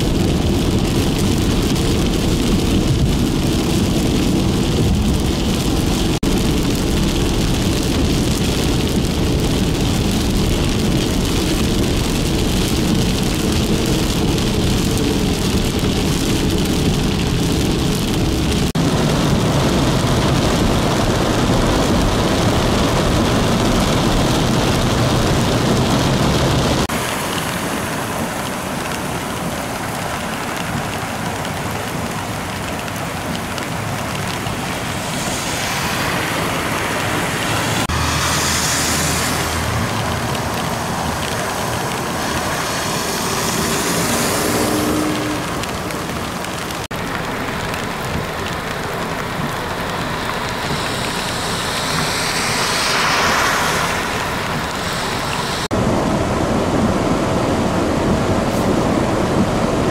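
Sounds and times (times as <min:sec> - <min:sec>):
heavy rain: 0:00.0 - 0:59.9
rain beating on car window: 0:00.0 - 0:59.9
vehicles driving through deep water: 0:00.0 - 0:59.9
tyres throwing up rushing spray: 0:33.1 - 0:47.6, 0:48.6 - 0:55.7.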